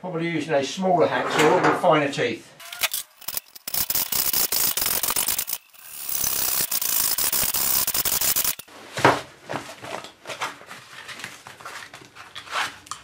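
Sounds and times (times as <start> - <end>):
hacksaw cutting metal tube: 2.6 - 8.6.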